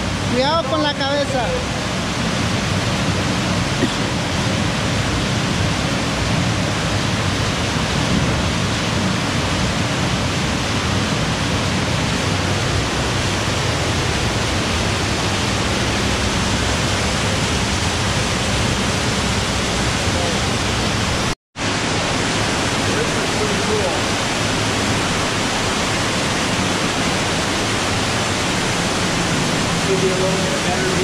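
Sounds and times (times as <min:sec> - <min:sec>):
waterfall rushing: 0:00.0 - 0:31.0.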